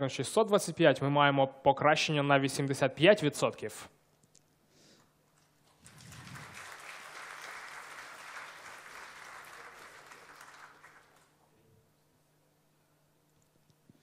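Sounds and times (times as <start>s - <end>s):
audience applauding: 5.6s - 11.4s.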